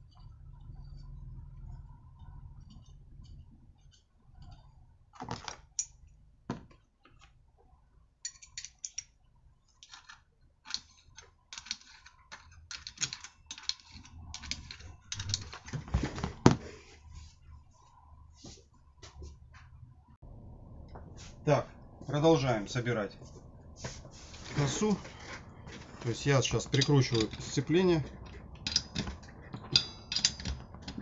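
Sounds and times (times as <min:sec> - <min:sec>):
light metal clicks and rattles: 0:08.2 - 0:15.9, 0:26.0 - 0:31.0.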